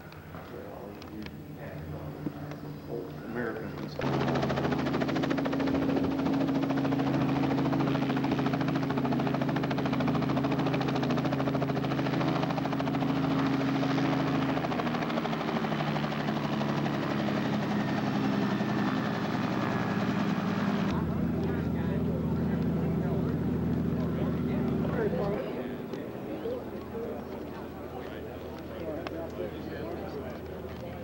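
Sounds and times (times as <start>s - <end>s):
helicopter engine and rotor: 0.3s - 31.0s.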